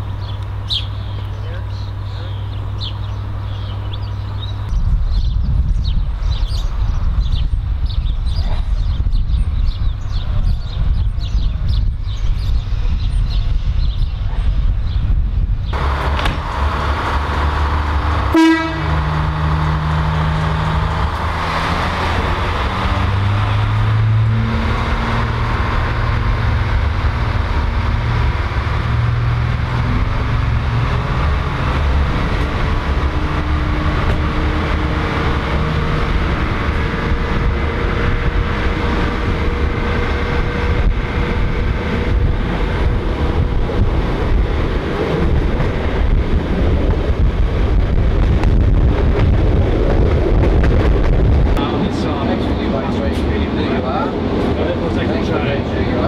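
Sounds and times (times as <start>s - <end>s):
railcar diesel engine accelerating: 0.0s - 56.0s
wheel and rail noise: 9.4s - 56.0s
train horn toot: 18.3s - 19.2s.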